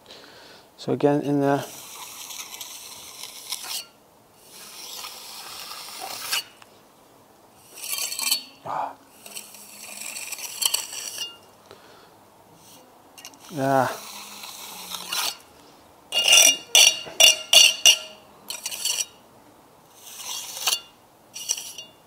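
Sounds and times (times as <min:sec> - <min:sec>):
trowel scraping mortar: 0:01.5 - 0:06.6, 0:07.6 - 0:08.6, 0:09.2 - 0:11.4, 0:12.6 - 0:15.5, 0:16.1 - 0:19.2, 0:19.9 - 0:22.0.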